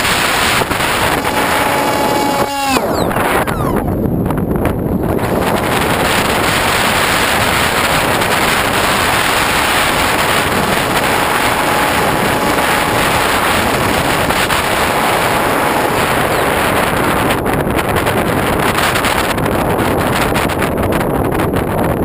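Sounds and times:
electric motor and propeller drone: 0.0s - 4.1s
wind rushing over camera: 0.0s - 22.0s.

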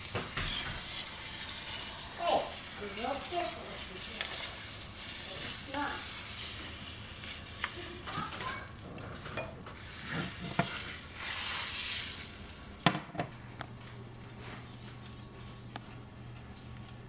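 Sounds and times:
batter sizzling in a hot skillet: 0.0s - 12.8s.

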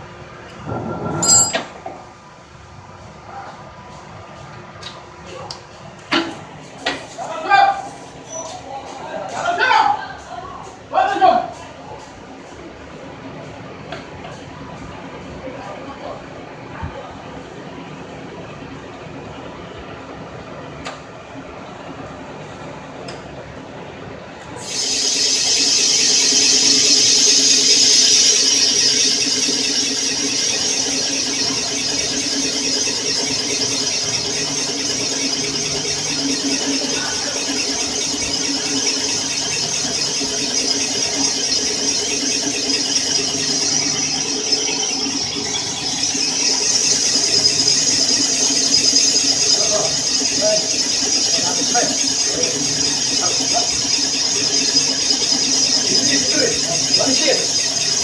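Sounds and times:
cutting tool squeal: 24.6s - 58.0s.

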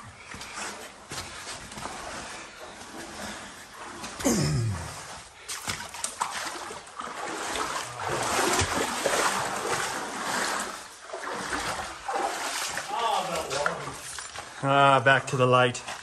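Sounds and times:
scuffs and knocks: 0.2s - 4.3s
water splashing from wading: 0.5s - 14.6s.

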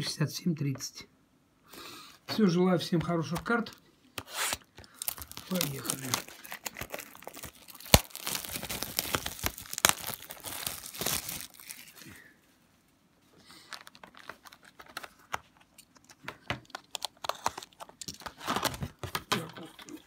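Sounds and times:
plastic wrap crinkling: 3.2s - 12.2s, 13.6s - 20.0s
plastic wrap snapping: 3.3s - 12.0s.

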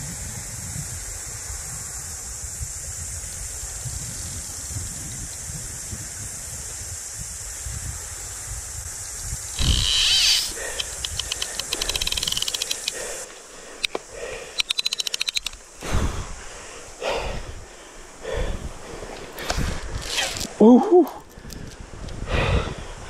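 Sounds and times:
fishing reel ratchet clicking: 9.6s - 13.2s, 14.6s - 15.7s.

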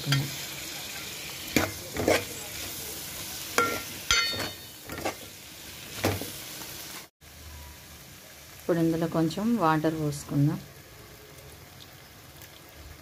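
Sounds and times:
oil sizzling: 0.0s - 13.0s
ladle scraping and clinking pan: 0.1s - 2.5s, 3.6s - 5.3s.

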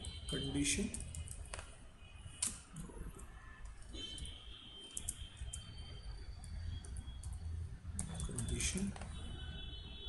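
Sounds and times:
computer keyboard clicks: 0.9s - 1.7s, 2.4s - 2.6s, 4.9s - 5.7s, 8.0s - 9.1s.

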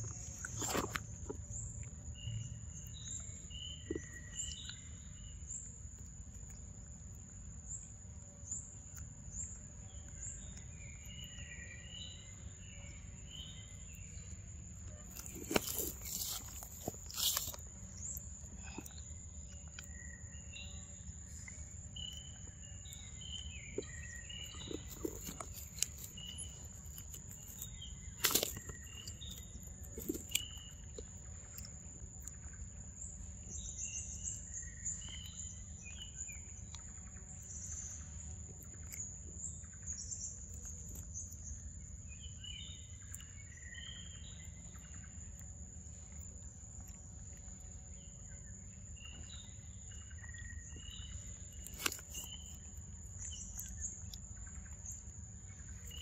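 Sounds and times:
insect drone: 0.0s - 56.0s
birds chirping: 7.3s - 46.4s.

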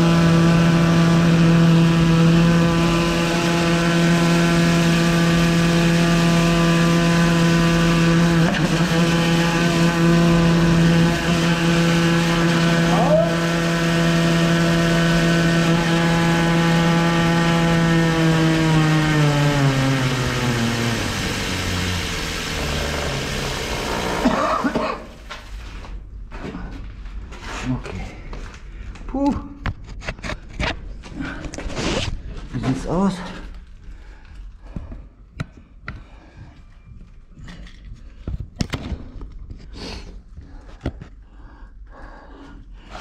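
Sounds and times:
drain jetting machine engine: 0.0s - 25.8s.

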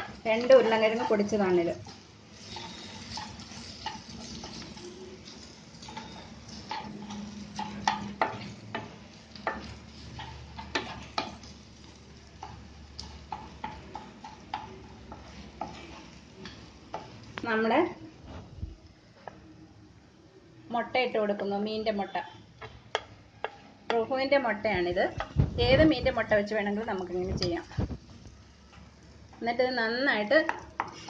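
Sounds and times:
spatula scraping frying pan: 0.0s - 17.2s, 30.4s - 31.0s
light sizzling: 0.0s - 19.5s, 21.0s - 31.0s.

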